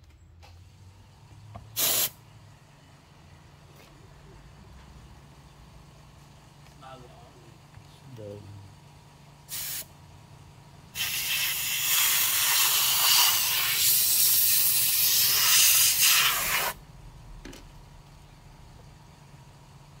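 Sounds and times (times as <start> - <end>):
air hissing from blower nozzle: 1.8 - 2.2, 9.5 - 9.9, 11.0 - 16.8.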